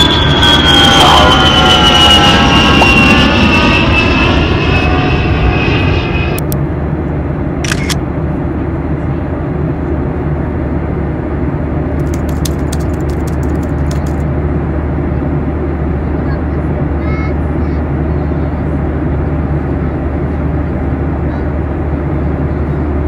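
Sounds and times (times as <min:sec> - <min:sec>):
airliner cabin roar: 0:00.0 - 0:23.0
sharp clicks: 0:12.0 - 0:14.2.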